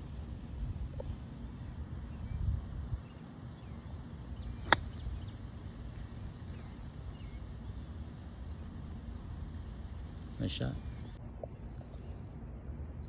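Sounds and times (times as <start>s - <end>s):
insects humming: 0.0s - 13.0s
golf club hitting ball: 4.6s - 5.0s.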